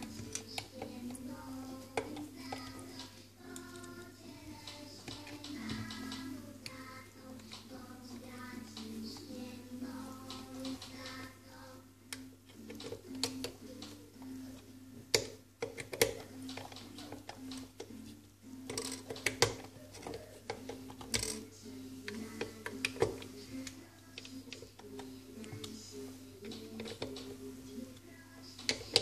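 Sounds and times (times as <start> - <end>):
faint background music: 0.0 - 29.0
tools clicking on plastic parts: 15.1 - 18.0, 18.6 - 25.8, 26.4 - 27.4, 28.6 - 29.0.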